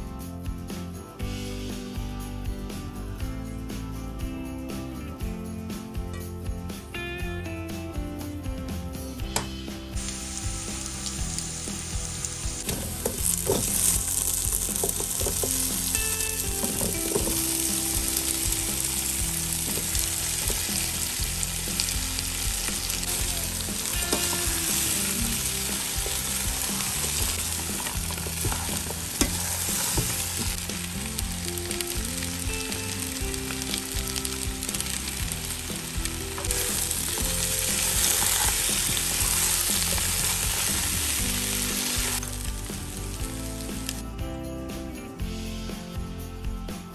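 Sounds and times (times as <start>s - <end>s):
hot oil sizzling and crackling: 9.2s - 44.8s.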